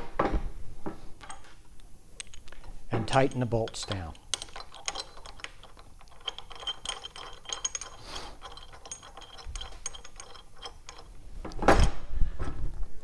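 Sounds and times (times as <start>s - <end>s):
ratchet wrench clicking: 3.2s - 11.1s.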